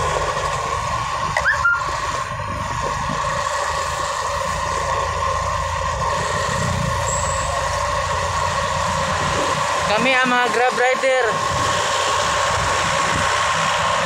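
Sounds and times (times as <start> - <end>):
motorcycle engine: 0.0 - 14.0
short rising squeak: 1.4 - 1.9, 7.0 - 7.7.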